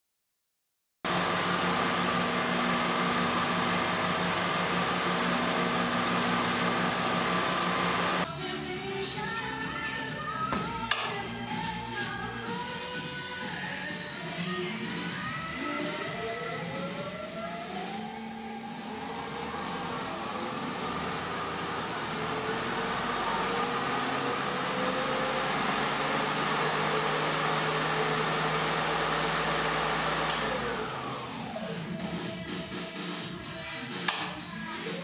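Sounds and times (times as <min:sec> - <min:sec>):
lathe motor whining: 0:01.1 - 0:08.3, 0:13.5 - 0:32.3.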